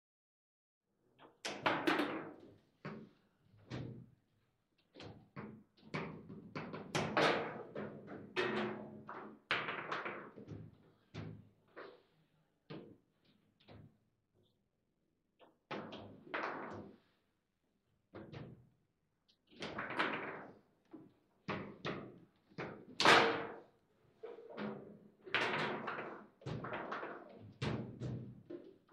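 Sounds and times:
table football knocks and clacks: 1.4 - 4.1, 4.9 - 11.9, 19.5 - 23.7, 24.4 - 28.9.

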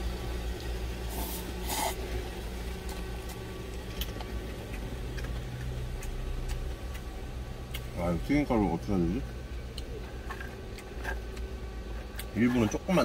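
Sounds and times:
engine idling hum: 0.0 - 13.0
quiet chewing: 0.5 - 8.0, 9.2 - 12.8
noodle slurping: 1.1 - 2.1.

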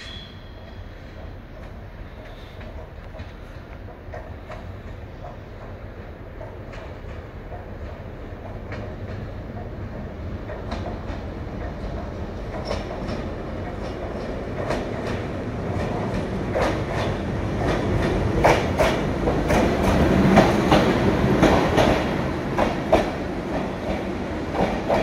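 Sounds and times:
train rumble: 0.0 - 25.0.

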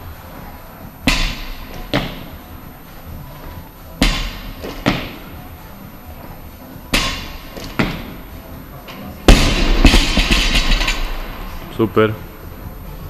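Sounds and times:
barbell dropped with loud bang: 1.0 - 2.3, 6.9 - 8.2, 9.3 - 11.5
barbell thudding on wooden platform: 4.0 - 5.2.

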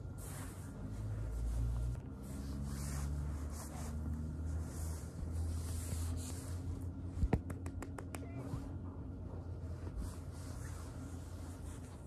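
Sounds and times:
fur brushing over microphone: 0.0 - 7.0, 9.6 - 12.0.

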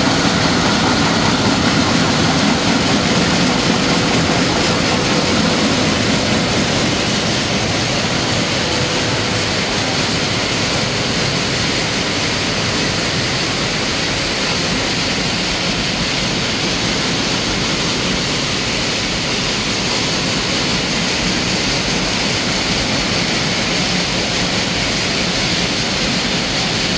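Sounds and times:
screening machine rushing noise: 0.0 - 21.5.

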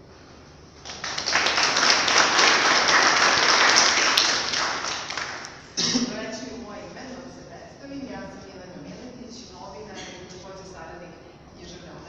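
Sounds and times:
audience applauding: 0.8 - 5.6.

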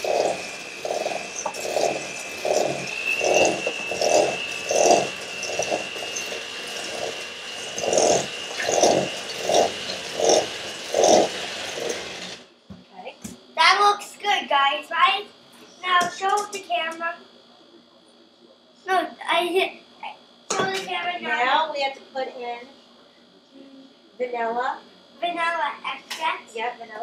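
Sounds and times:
mixer rhythmic swish in bowl: 0.0 - 12.4
electric hand mixer whine: 0.0 - 12.6.

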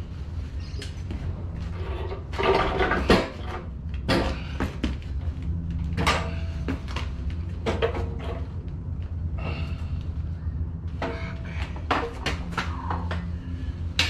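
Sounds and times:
steady low hum: 0.0 - 14.0
metal parts clanking and scraping: 1.6 - 4.4.

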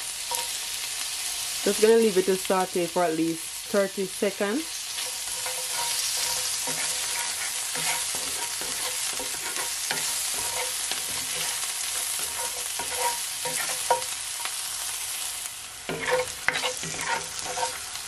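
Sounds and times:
onion sizzling in oil: 0.0 - 18.0
wooden spatula scraping a pan: 4.9 - 14.5, 15.9 - 18.0.

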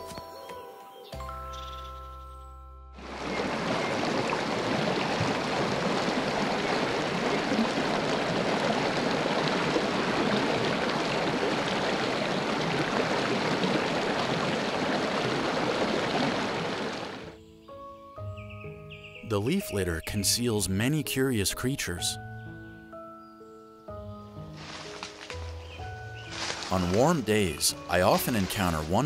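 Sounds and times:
stream rushing over stones: 3.0 - 17.3, 24.5 - 29.0.

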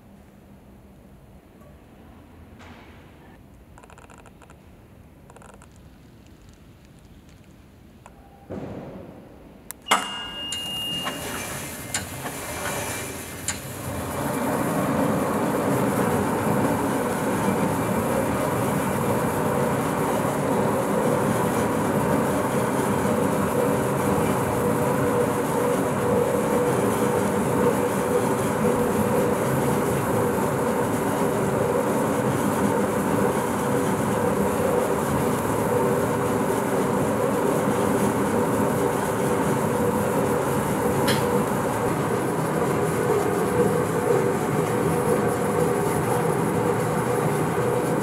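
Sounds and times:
pallet wrapper mechanical hum: 3.7 - 48.0
machine click: 9.7 - 11.2.

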